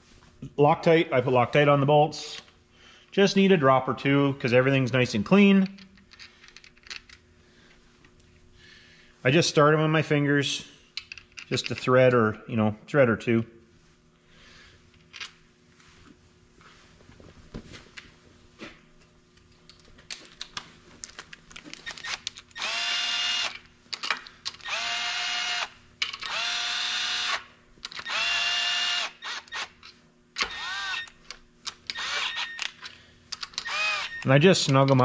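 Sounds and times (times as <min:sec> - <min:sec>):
cordless drill bursts: 0:22.0 - 0:23.6, 0:24.6 - 0:29.8, 0:30.4 - 0:31.2, 0:31.9 - 0:32.6, 0:33.6 - 0:34.3.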